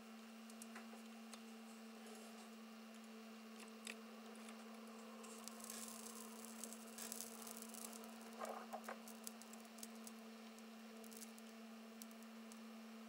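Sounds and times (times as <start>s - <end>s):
faint steady hum: 0.0s - 13.0s
soft crackles and ticks: 4.7s - 12.6s.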